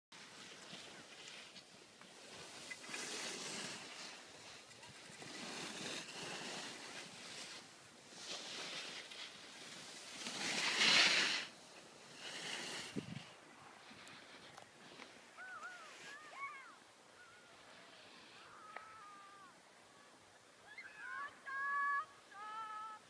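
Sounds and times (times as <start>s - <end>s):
skis scraping over snow: 0.2s - 16.8s.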